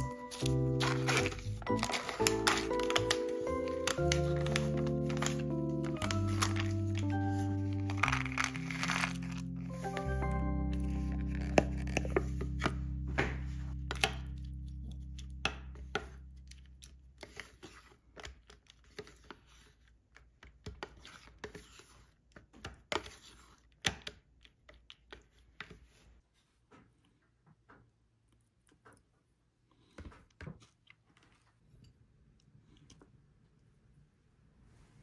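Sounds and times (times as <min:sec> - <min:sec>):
spoon scraping in plastic cup: 0:00.0 - 0:12.8
background music: 0:00.0 - 0:17.0.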